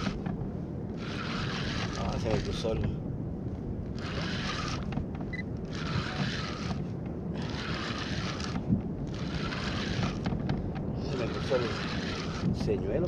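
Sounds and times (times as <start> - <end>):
wind rumbling on microphone: 0.0 - 13.0.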